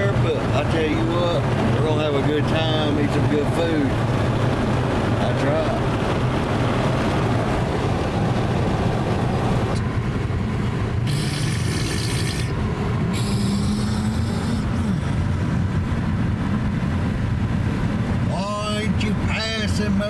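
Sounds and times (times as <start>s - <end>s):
tyres and engine rumble in car: 0.0s - 20.0s
road hiss: 10.9s - 15.5s.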